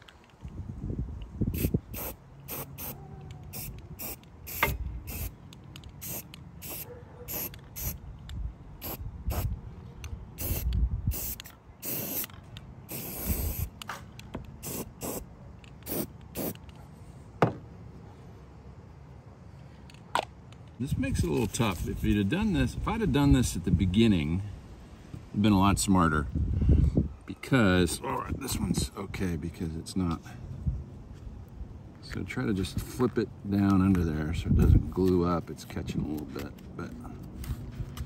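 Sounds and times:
aerosol spray can hissing: 1.6s - 5.3s, 6.0s - 8.0s, 8.8s - 9.5s, 10.4s - 12.3s, 12.9s - 13.7s, 14.6s - 15.2s, 15.8s - 16.6s.

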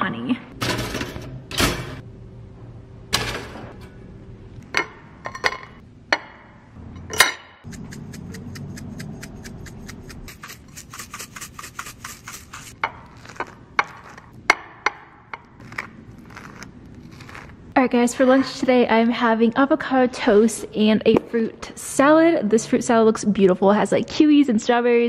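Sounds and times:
fork scraping toast: 7.8s - 14.3s, 15.6s - 17.6s.

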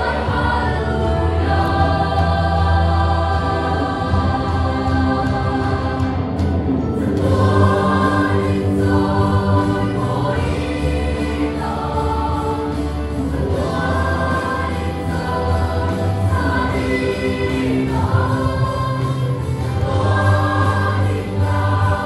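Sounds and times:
choir singing a hymn: 0.0s - 22.0s
low instrumental accompaniment: 0.0s - 22.0s.

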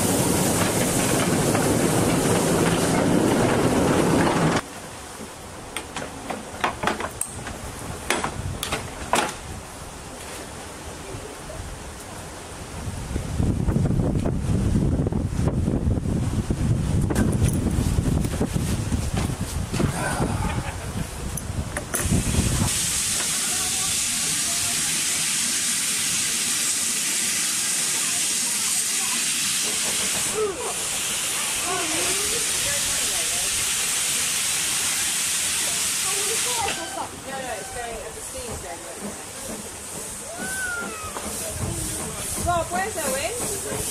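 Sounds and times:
rail vehicle running on track: 0.0s - 43.9s
steam locomotive venting steam: 0.0s - 43.9s
sharp clicks and knocks: 5.8s - 9.4s.

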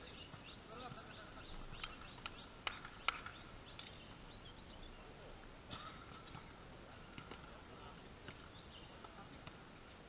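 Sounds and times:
birds chirping: 0.0s - 9.4s
volleyball slaps: 1.8s - 3.9s.

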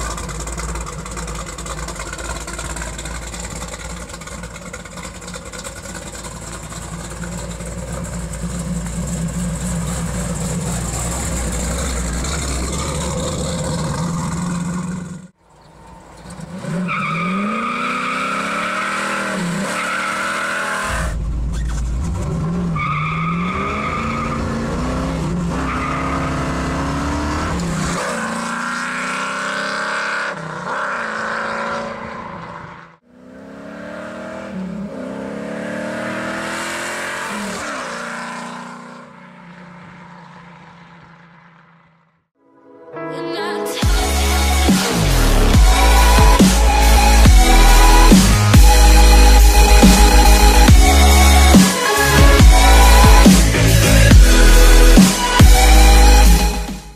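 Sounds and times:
car engine rumbling and revving: 0.0s - 42.3s, 43.9s - 56.9s.

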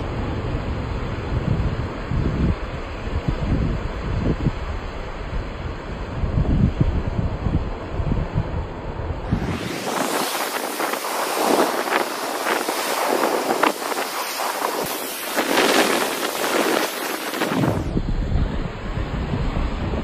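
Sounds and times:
waves breaking over rocks: 9.3s - 18.0s.

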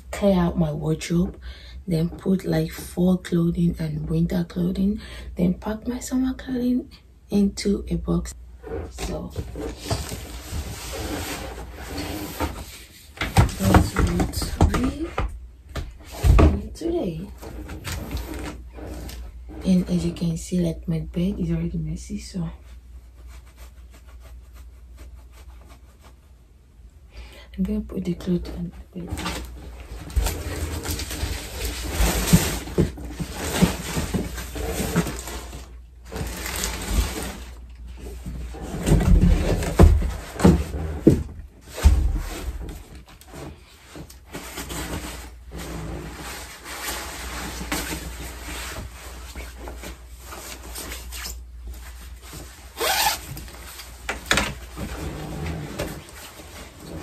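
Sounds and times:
thumps and knocks: 13.2s - 16.7s
clothes rustling: 28.6s - 57.0s.

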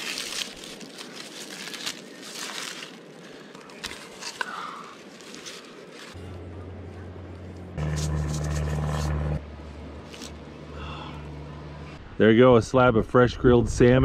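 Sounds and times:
dry corn husks rustling and tearing: 0.0s - 6.4s, 7.8s - 9.2s, 10.0s - 10.4s
low steady hum: 3.3s - 14.0s.

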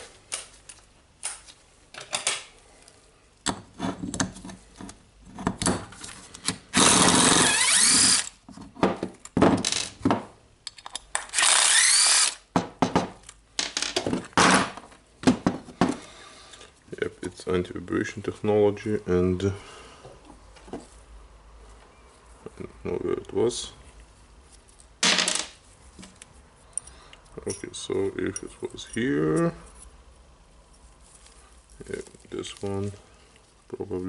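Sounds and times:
clicks and knocks of parts: 0.3s - 6.7s, 8.6s - 11.4s
cordless drill whining: 6.8s - 8.3s, 11.3s - 12.4s.

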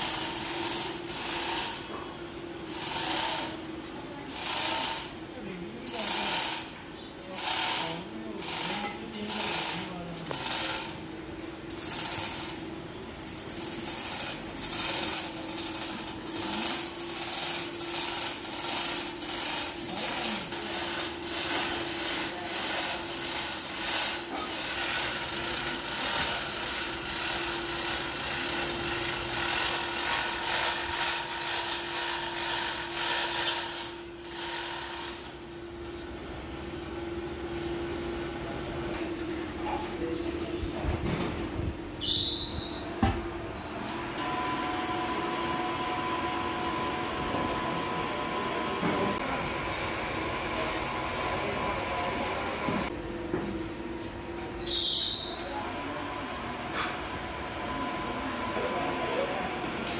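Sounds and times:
steady machine hum: 0.0s - 54.7s, 55.4s - 59.9s
chain hoist ratchet clicking: 7.4s - 11.0s, 11.7s - 35.3s.

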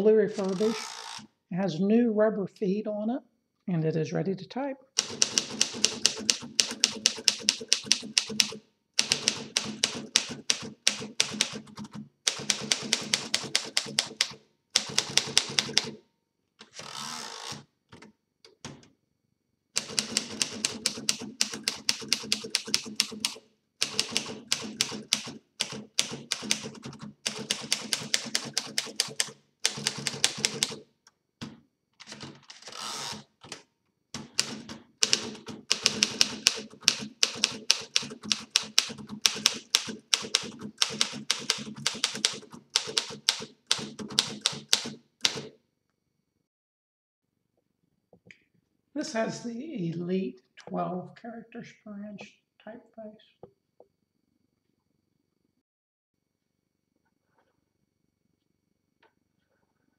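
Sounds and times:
typewriter typebar strikes: 5.0s - 11.6s, 34.2s - 45.5s
typewriter carriage sliding: 32.0s - 33.6s.

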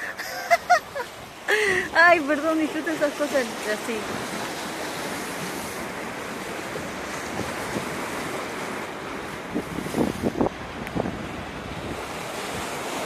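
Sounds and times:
sea water washing against rocks: 0.0s - 13.0s
wind on microphone: 6.7s - 13.0s.

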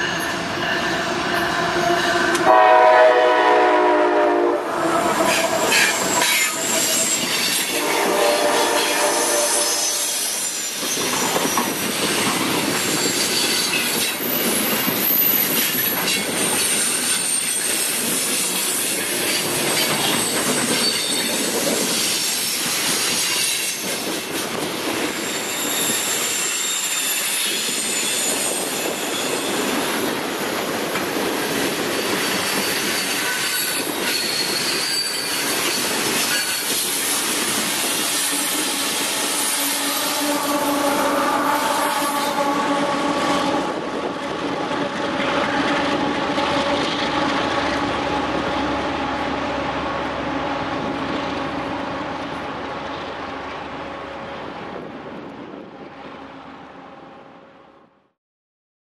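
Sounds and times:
high-pitched wheel squeal: 4.8s - 12.0s, 12.6s - 22.3s, 25.1s - 30.0s, 32.0s - 43.9s
train wheels clattering on rails: 5.1s - 9.0s, 9.7s - 39.9s.

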